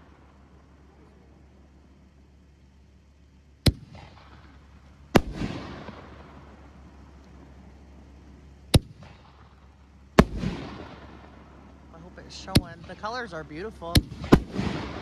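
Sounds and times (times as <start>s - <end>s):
firework booms with rolling echo: 3.6s - 8.0s, 8.7s - 15.0s.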